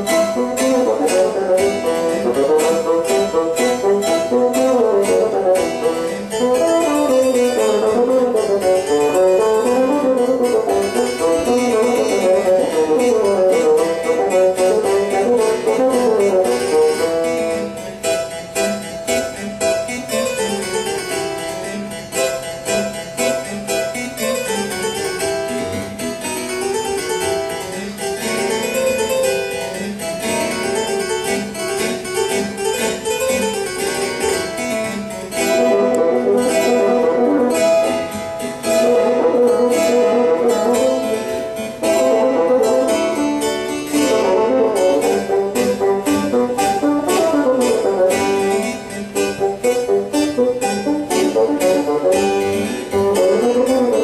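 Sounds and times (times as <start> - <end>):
bassoon: 0.0 - 17.8, 35.4 - 54.0
harpsichord: 0.0 - 54.0.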